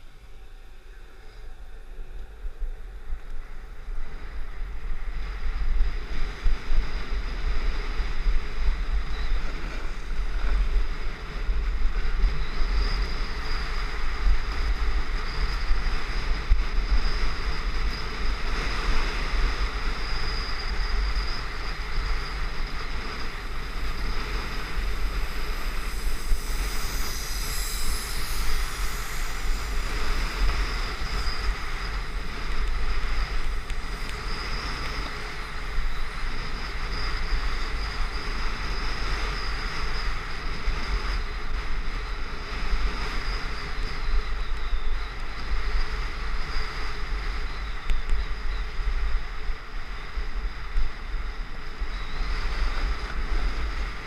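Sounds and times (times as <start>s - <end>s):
wind buffeting microphone: 0.0s - 54.0s
skis scraping on snow: 21.4s - 39.8s.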